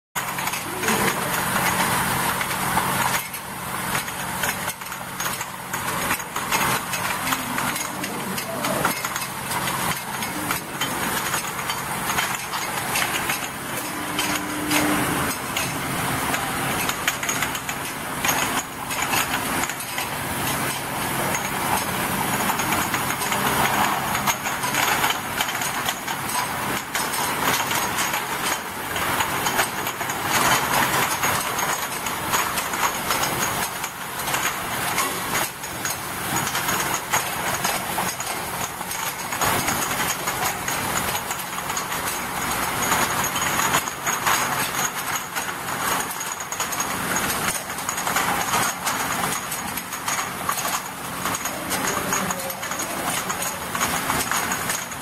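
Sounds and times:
machine low hum: 0.2s - 36.8s
glass bottles clinking: 3.9s - 55.0s.

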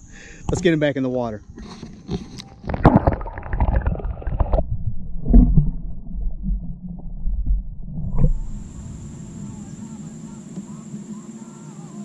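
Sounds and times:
water splashing against camera: 1.5s - 11.1s
muffled underwater gurgling: 2.2s - 12.0s
bubbles streaming: 2.6s - 9.6s.

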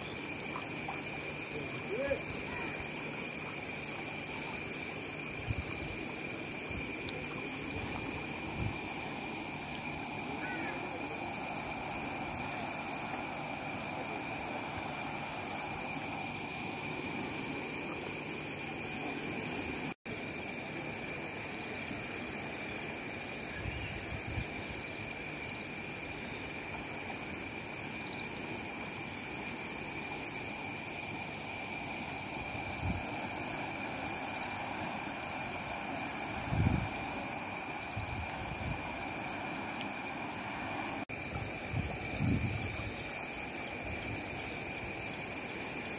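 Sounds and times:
insect chorus high whine: 0.0s - 45.9s
river rushing hiss: 0.0s - 45.9s.

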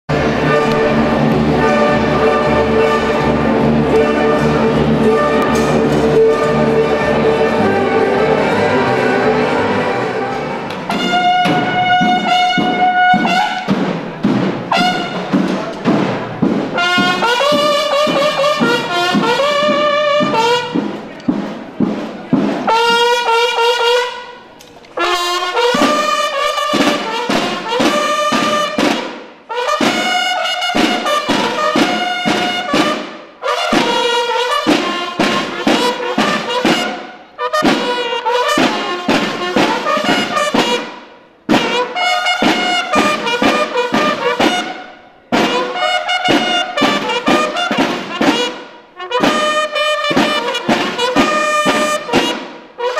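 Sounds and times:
snare drum beats and rolls: 0.1s - 24.4s, 25.0s - 52.9s
bugles playing: 0.1s - 52.9s.

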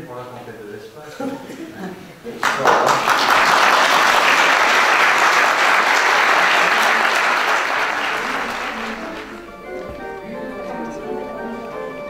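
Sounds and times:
audience applauding: 2.4s - 9.8s.

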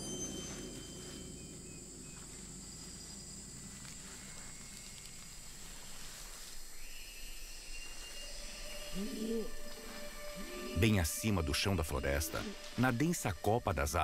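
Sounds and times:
insect drone: 0.0s - 14.0s
snake rustling dry leaves: 0.5s - 10.7s, 12.0s - 12.9s.

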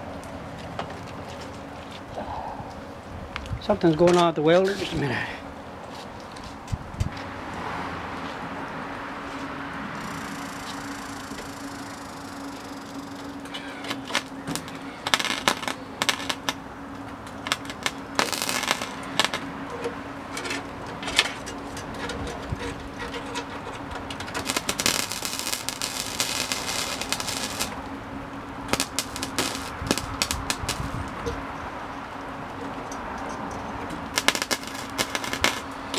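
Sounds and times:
steady low hum: 0.0s - 35.9s
welder arc crackling: 10.0s - 19.5s, 24.2s - 31.2s, 34.1s - 35.9s.

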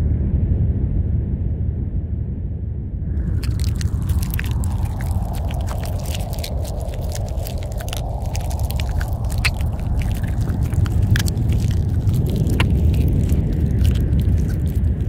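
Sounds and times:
low rumbling drone: 1.0s - 15.0s
chewing and crunching: 3.2s - 15.0s.

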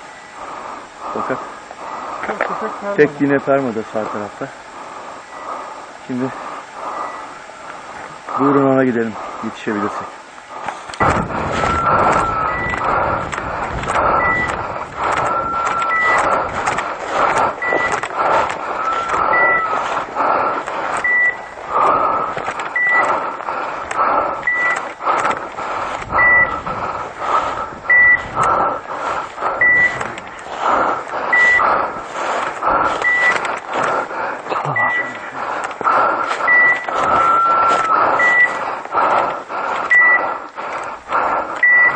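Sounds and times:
brush crackling and rustling: 10.5s - 24.0s, 24.7s - 41.2s
beeper collar beeping: 11.6s - 12.9s, 14.1s - 14.6s, 15.3s - 16.4s, 17.6s - 18.0s, 18.8s - 19.8s, 21.0s - 21.6s, 24.4s - 24.8s, 26.2s - 26.6s, 27.9s - 28.3s, 29.6s - 30.1s, 31.3s - 31.7s, 33.0s - 33.4s, 34.6s - 35.2s, 36.4s - 38.6s, 39.9s - 40.3s, 41.6s - 41.9s.

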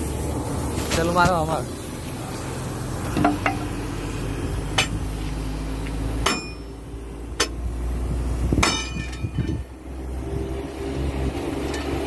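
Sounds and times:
hammer striking steel: 4.8s - 5.0s, 6.2s - 6.8s, 7.4s - 7.6s, 8.6s - 9.6s.

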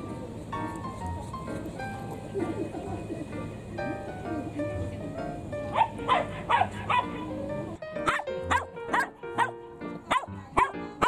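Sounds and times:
background music with held tones: 0.0s - 11.0s
dog barking: 5.7s - 7.3s, 8.0s - 11.0s.

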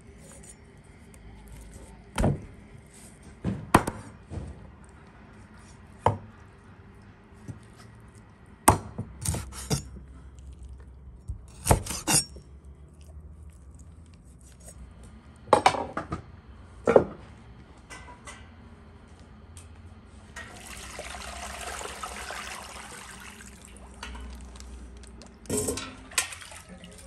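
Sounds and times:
knife chopping on wooden board: 8.7s - 9.8s, 11.4s - 12.3s.

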